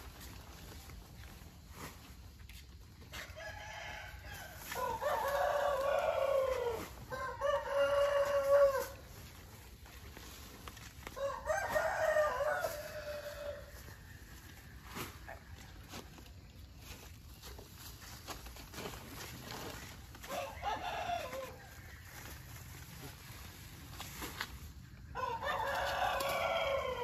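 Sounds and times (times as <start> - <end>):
rooster crowing: 3.2 - 9.0, 11.2 - 13.9, 20.3 - 21.8, 25.1 - 27.0.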